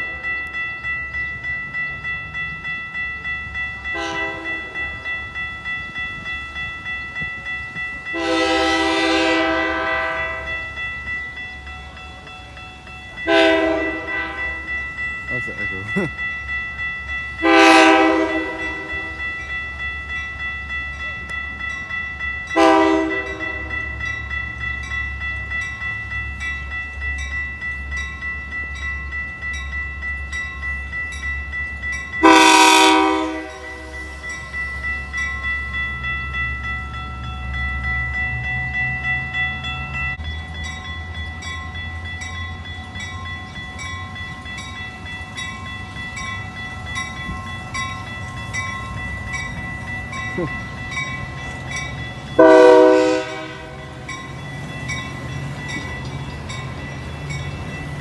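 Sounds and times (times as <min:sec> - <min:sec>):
crossing bells ringing: 0:00.0 - 0:58.0
low rumble of passing train: 0:00.0 - 0:58.0
train horn blasts: 0:03.9 - 0:04.8, 0:08.1 - 0:10.6, 0:13.2 - 0:14.7, 0:17.4 - 0:19.1, 0:22.6 - 0:23.7, 0:32.2 - 0:34.0, 0:52.4 - 0:53.9.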